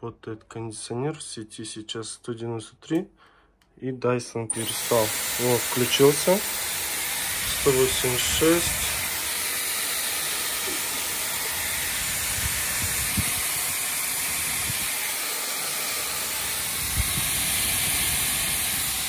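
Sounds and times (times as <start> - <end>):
hair styler airflow hiss: 4.5 - 19.0.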